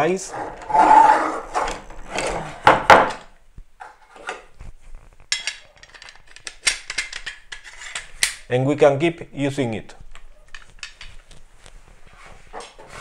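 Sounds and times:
metal bar scraping wood: 0.2 - 2.8, 12.2 - 13.0.

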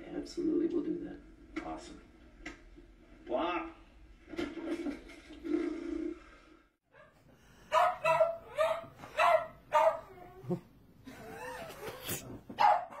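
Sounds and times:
dog barking: 6.9 - 10.6, 12.6 - 13.0.

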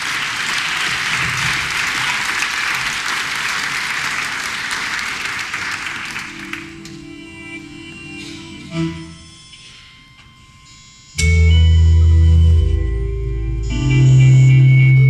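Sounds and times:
audience applauding: 0.0 - 7.1
music: 5.8 - 15.0.

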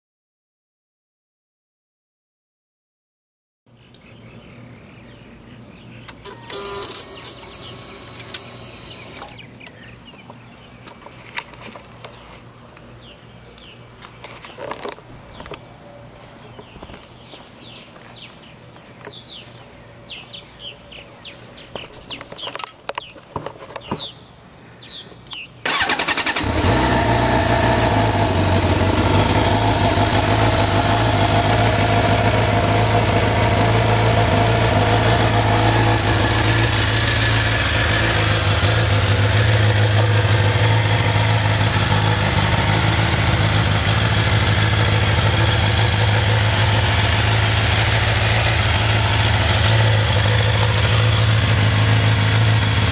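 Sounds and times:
faint chirps and clicks: 3.9 - 4.1, 24.9 - 25.5
motorcycle engine starting and idling: 6.1 - 9.5, 25.6 - 52.9.

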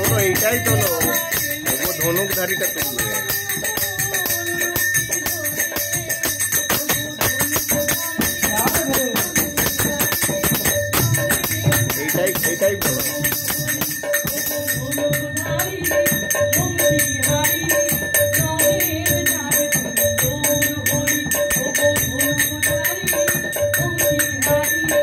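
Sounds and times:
hand drum beat: 0.0 - 15.2
small hand cymbals jingling: 0.0 - 25.0.

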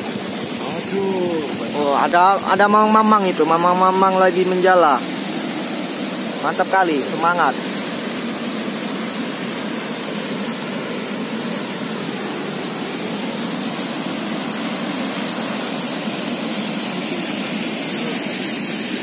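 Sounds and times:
water rushing through sluice gates: 0.0 - 19.0.

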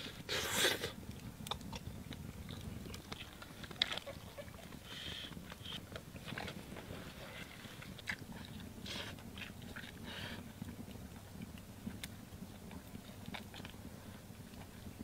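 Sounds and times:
person blowing on food: 0.0 - 1.0
person chewing with crunching: 0.0 - 15.0.

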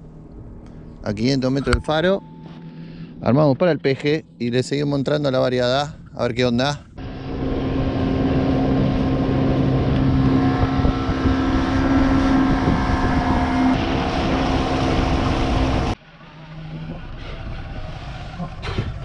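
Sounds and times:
wind: 0.0 - 19.0
small outboard motor droning: 7.0 - 19.0.

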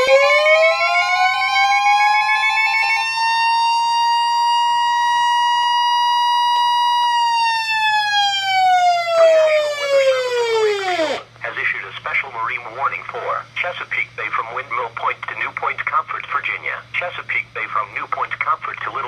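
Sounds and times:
siren winding up and down: 0.0 - 11.3
steady high alarm tone: 0.0 - 11.3.

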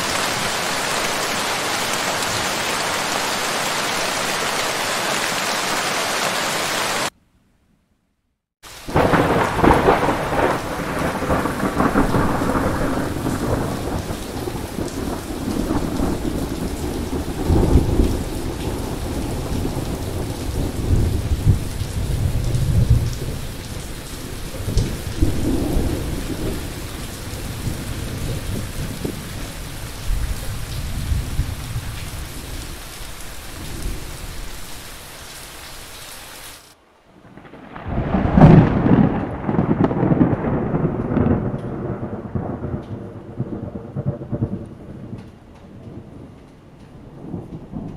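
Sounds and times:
heavy rain hissing: 0.0 - 7.1, 8.6 - 36.8
thunder rumbling: 8.8 - 34.7, 37.1 - 47.9.

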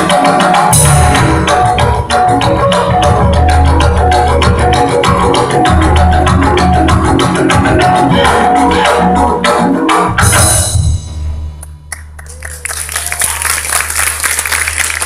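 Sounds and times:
gamelan ensemble playing: 0.0 - 12.3
audience applause: 11.9 - 15.0.

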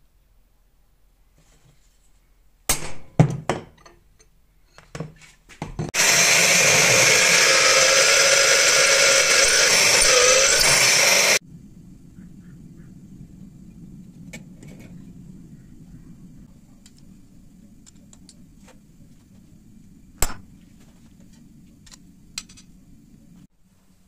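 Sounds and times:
drill press grinding steel: 6.0 - 11.4.

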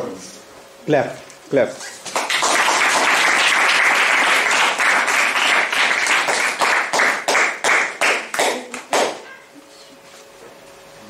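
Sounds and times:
audience applauding: 2.1 - 9.2.

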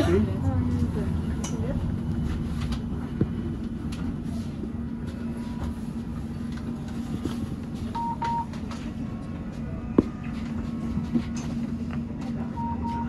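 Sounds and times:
bus interior drone: 0.0 - 13.0
short electronic beeps: 12.6 - 13.0.

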